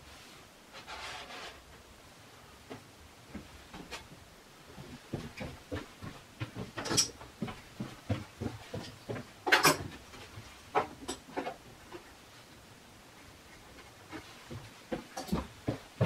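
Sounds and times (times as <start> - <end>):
footsteps on wooden floor: 3.3 - 10.5, 14.1 - 16.0.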